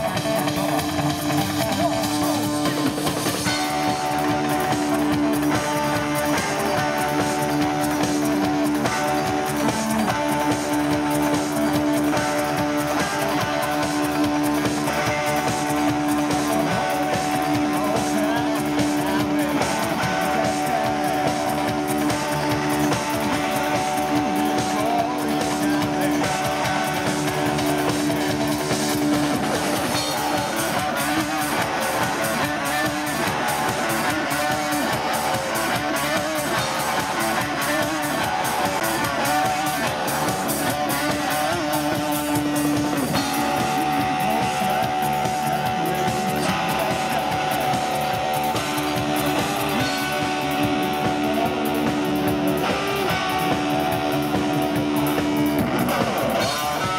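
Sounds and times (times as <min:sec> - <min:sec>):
live rock band playing: 0:00.0 - 0:56.9
sustained guitar notes: 0:00.0 - 0:56.9.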